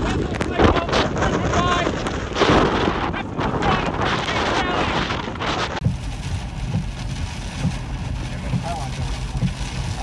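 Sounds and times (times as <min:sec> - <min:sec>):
wind blasting across microphone: 0:00.0 - 0:10.0
muffled rumble inside vehicle: 0:05.8 - 0:10.0
rain streaming over windshield: 0:05.8 - 0:10.0.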